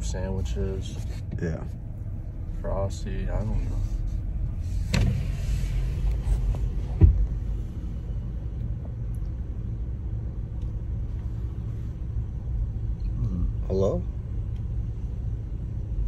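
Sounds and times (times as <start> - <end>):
car cabin low rumble: 0.0 - 16.0
loud thump: 4.8 - 5.4, 6.9 - 7.4.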